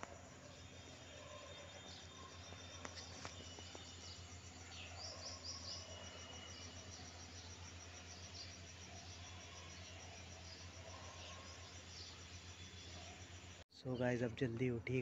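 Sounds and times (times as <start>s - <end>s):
high insect chirping: 0.0s - 13.6s.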